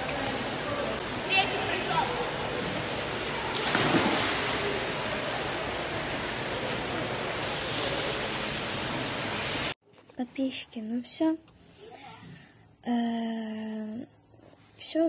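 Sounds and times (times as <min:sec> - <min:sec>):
pool water hissing: 0:00.0 - 0:09.8
splash of person jumping in pool: 0:03.5 - 0:04.8.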